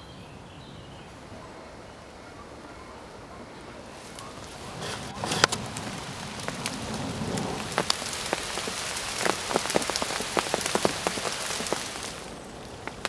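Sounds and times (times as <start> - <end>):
rain falling on lake: 2.1 - 13.0.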